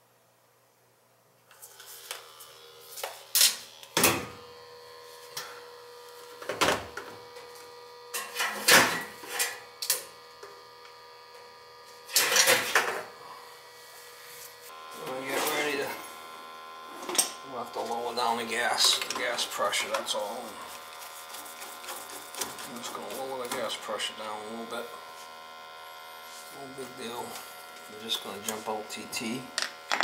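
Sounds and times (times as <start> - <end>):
steady hum with held tones: 0.0 - 30.0.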